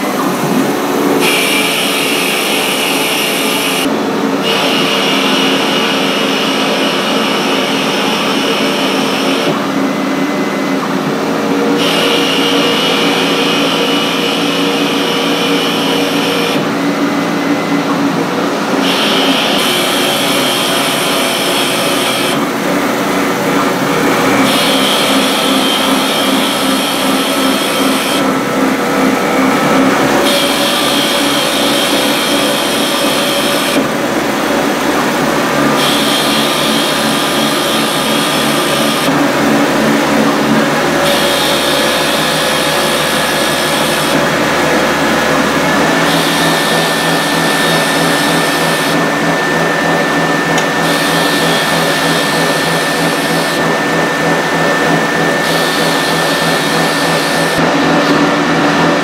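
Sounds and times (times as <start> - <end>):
lathe spindle motor running: 0.0 - 59.0.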